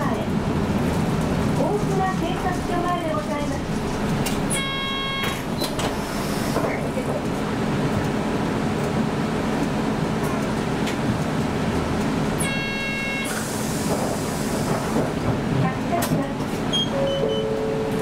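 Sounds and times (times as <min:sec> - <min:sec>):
bus engine running: 0:00.0 - 0:18.0
road and cabin noise: 0:00.0 - 0:18.0.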